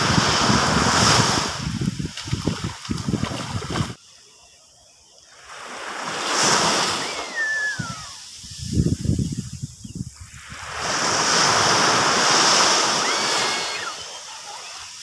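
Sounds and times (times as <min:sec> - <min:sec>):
waves washing up beach: 0:00.0 - 0:04.0, 0:05.3 - 0:09.2, 0:10.2 - 0:15.0
wind buffeting microphone: 0:00.0 - 0:04.0, 0:06.9 - 0:12.4
short falling whistle: 0:06.7 - 0:08.6, 0:12.8 - 0:14.4.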